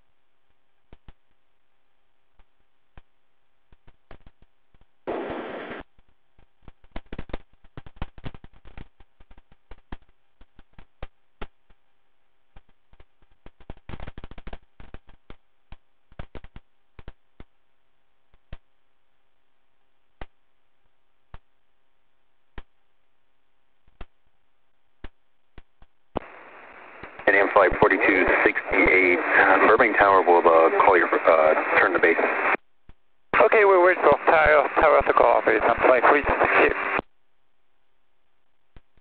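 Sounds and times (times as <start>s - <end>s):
low hiss and hum: 0.0s - 39.0s
radio static crackling: 5.1s - 6.0s, 26.1s - 32.6s, 33.3s - 37.1s.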